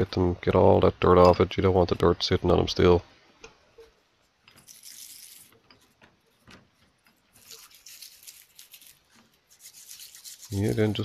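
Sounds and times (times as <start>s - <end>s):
wire brush scrubbing steel: 4.5s - 11.0s.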